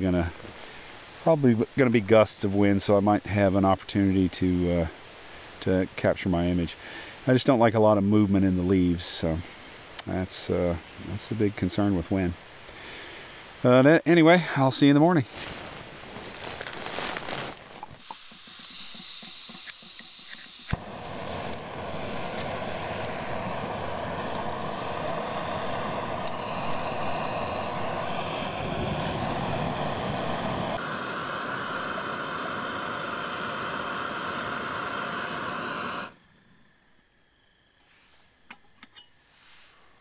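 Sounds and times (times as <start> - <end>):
gas burner hissing: 17.8 - 38.2
stove igniter click: 19.6 - 23.4.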